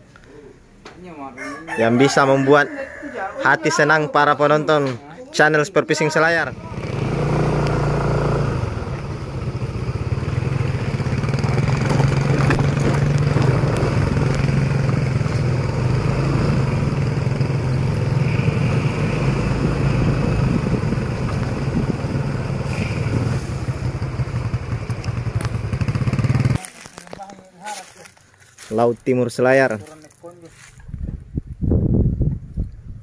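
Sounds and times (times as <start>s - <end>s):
motor engine droning: 6.4s - 26.6s.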